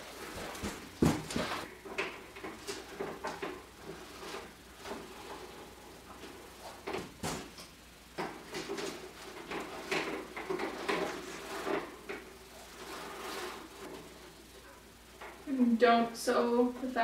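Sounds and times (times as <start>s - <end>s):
netting rustling and swishing: 8.6s - 15.1s.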